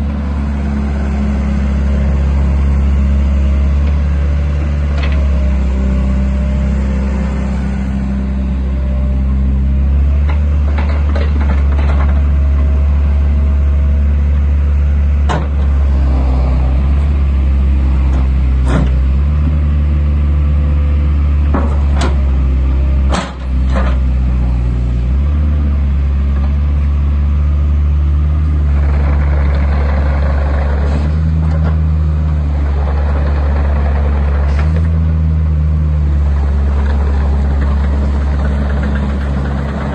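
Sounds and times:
excavator diesel engine running: 0:00.0 - 0:39.9
machine knocks and clunks: 0:10.2 - 0:12.3, 0:15.2 - 0:15.8, 0:18.1 - 0:19.6, 0:23.1 - 0:24.1.

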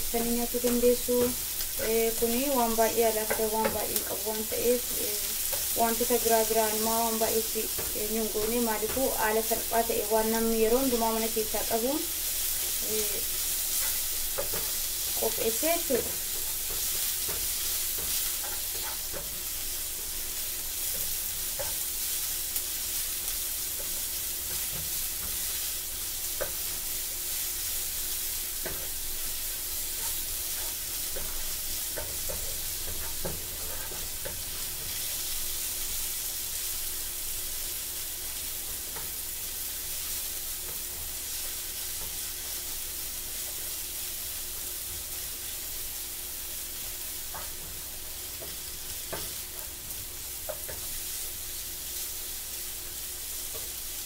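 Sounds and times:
onions sizzling in a frying pan: 0:00.0 - 0:54.0
wooden spatula knocking and scraping pan: 0:00.4 - 0:11.8, 0:12.6 - 0:22.1, 0:23.7 - 0:25.6, 0:28.5 - 0:35.4.

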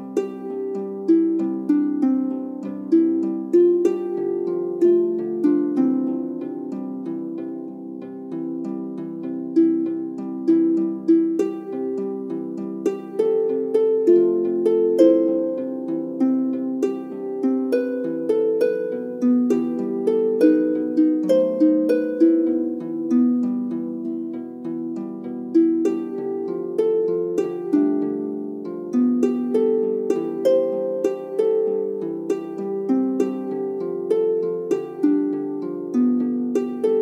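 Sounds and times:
harp melody: 0:00.0 - 0:37.0.

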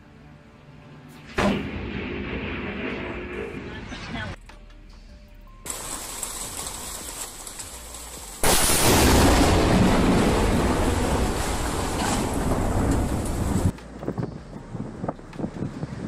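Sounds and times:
wind and rain on microphone: 0:05.7 - 0:16.0.

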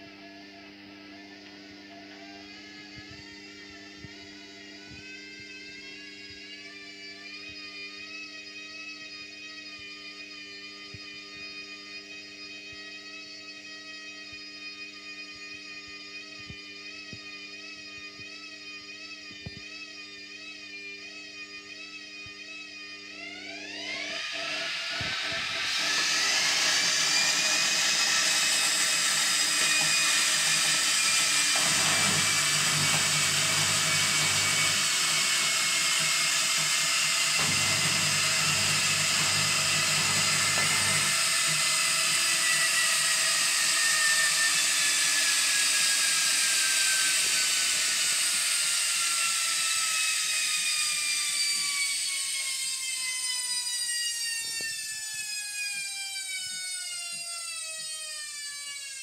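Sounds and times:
washing machine drum whine: 0:21.1 - 0:52.6.

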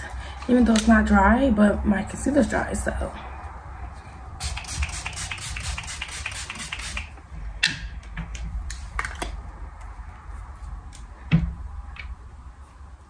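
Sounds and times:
spray bottle pumps hissing: 0:04.4 - 0:07.1.

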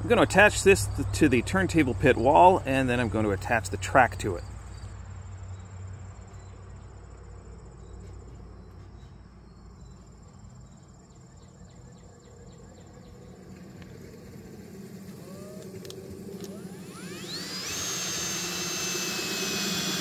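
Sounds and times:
crickets chirping: 0:00.1 - 0:20.0
cordless drill whine: 0:14.3 - 0:20.0.

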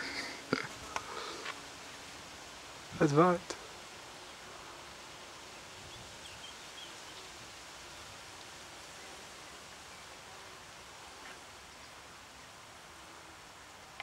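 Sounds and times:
breeze and rustling foliage: 0:00.0 - 0:14.0.

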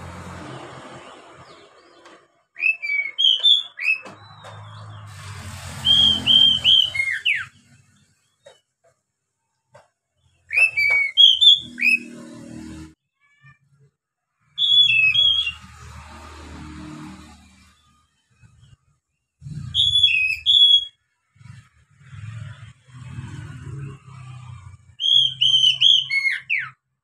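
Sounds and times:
bird whistled song: 0:02.6 - 0:05.0, 0:05.8 - 0:07.7, 0:10.5 - 0:12.2, 0:14.6 - 0:15.7, 0:19.4 - 0:21.0, 0:24.9 - 0:26.8.

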